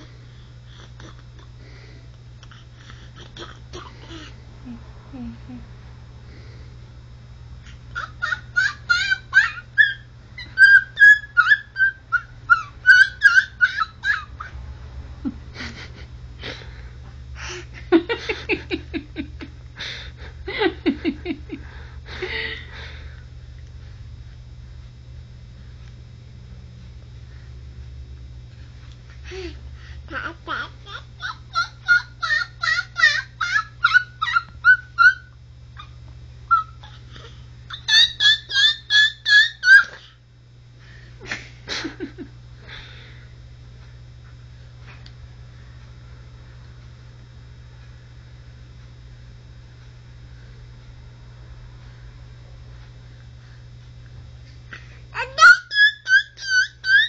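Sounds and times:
baby babbling: 30.1s - 31.0s.

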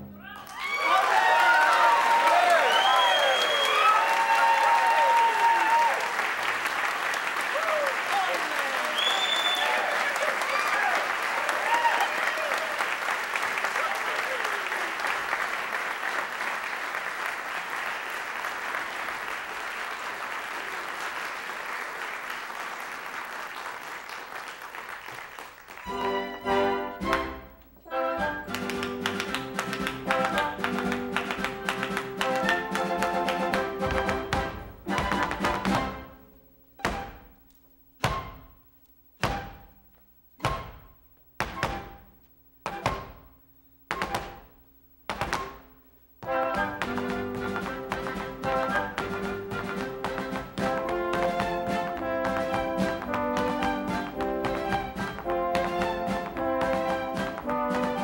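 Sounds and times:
audience applauding: 0.2s - 27.4s, 28.3s - 36.0s, 46.5s - 58.0s
soft orchestral music: 25.8s - 37.3s, 46.2s - 58.0s
hard shoes stamping on wooden stage: 28.5s - 36.0s, 40.4s - 58.0s.

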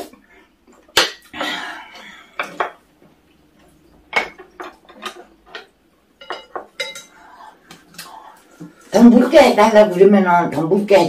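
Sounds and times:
cutlery clinking on dishes: 4.1s - 7.2s.

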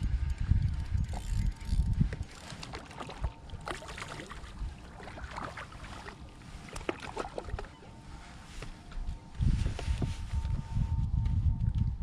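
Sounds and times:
water lapping against kayak hull: 2.1s - 8.4s.

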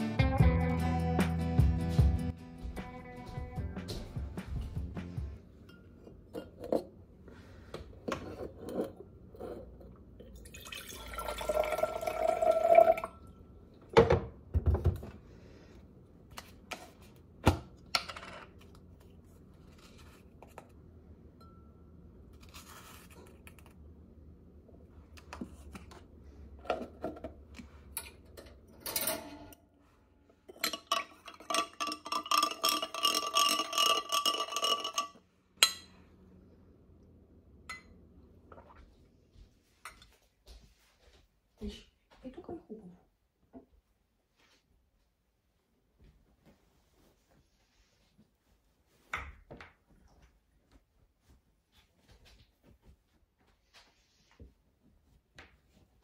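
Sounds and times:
dishes and cutlery clinking: 30.5s - 36.0s.

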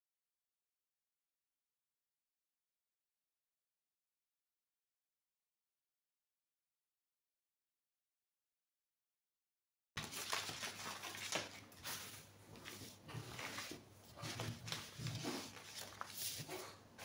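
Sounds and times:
paper rustling and crinkling: 10.0s - 17.0s.

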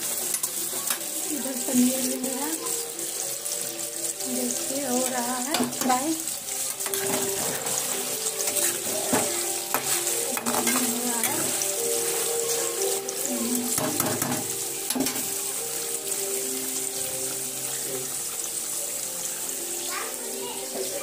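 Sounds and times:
oil sizzling: 0.0s - 21.0s
spatula knocking against pan: 13.7s - 15.3s.

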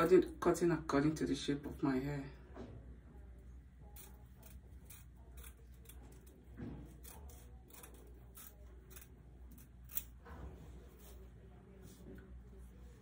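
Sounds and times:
small scissors snipping: 3.9s - 10.2s.

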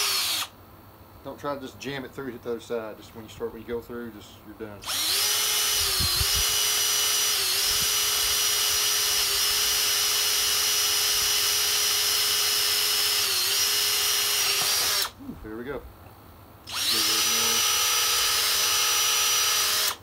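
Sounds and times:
cordless drill whining: 0.0s - 0.5s, 4.8s - 15.2s, 16.7s - 20.0s.

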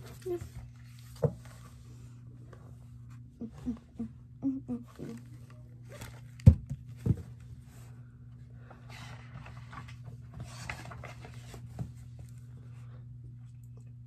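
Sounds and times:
book rustling: 0.0s - 3.1s, 8.6s - 12.4s
low steady hum: 0.0s - 14.0s.

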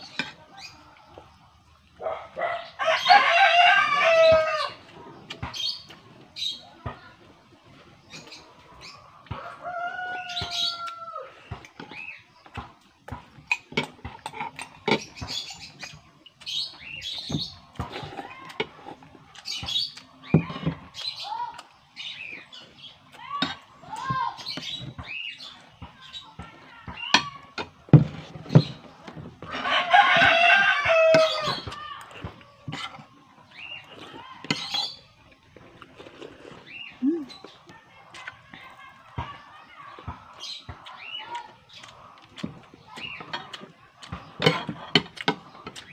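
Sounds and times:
rooster crowing: 2.8s - 4.8s, 9.3s - 11.4s, 29.5s - 31.7s.

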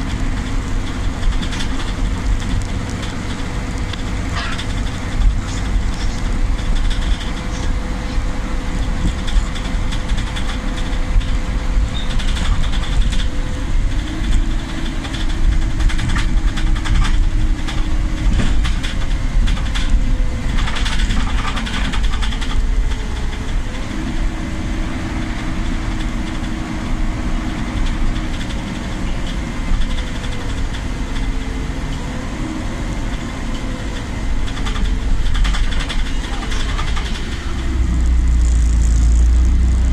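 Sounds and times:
knocks and rattles: 0.0s - 7.7s, 8.8s - 23.7s, 34.4s - 39.9s
bus engine and drivetrain rumble: 0.0s - 39.9s.

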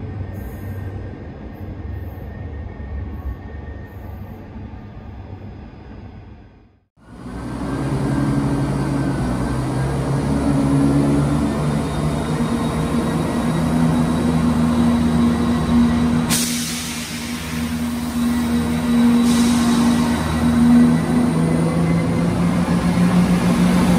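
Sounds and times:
train diesel engines revving: 7.0s - 23.9s
air hiss: 16.3s - 20.2s.

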